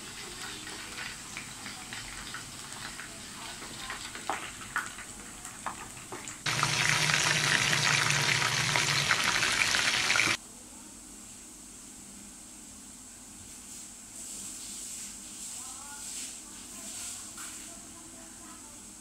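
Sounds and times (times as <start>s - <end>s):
food deep-frying in bubbling oil: 0.0s - 10.4s
loud dense sizzle of frying: 0.0s - 10.4s.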